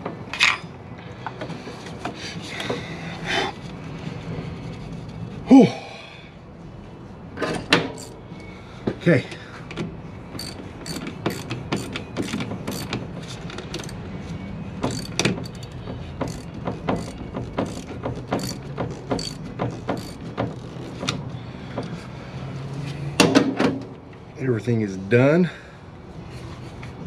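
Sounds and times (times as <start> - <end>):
ratchet wrench clicking: 8.0 - 8.2, 10.3 - 14.0, 14.8 - 21.2.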